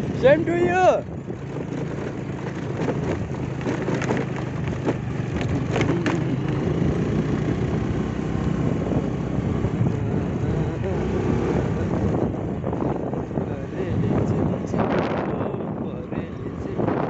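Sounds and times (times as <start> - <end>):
motorcycle engine running: 0.0 - 17.0
road and wind noise: 0.0 - 17.0
sharp knocks and rattles: 1.2 - 6.7.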